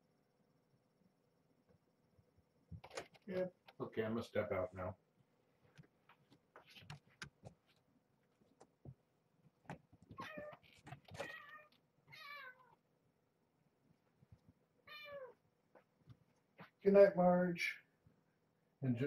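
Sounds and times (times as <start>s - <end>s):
cat meowing: 10.1s - 12.8s, 14.8s - 15.4s.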